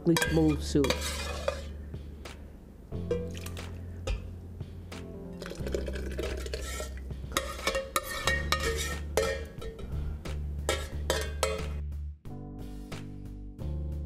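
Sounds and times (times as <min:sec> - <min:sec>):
metal ladle scraping a pot: 0:00.1 - 0:01.8, 0:05.4 - 0:10.0, 0:10.6 - 0:11.7
background music with bass line: 0:01.7 - 0:14.0
soup pouring into blender jar: 0:05.4 - 0:06.9.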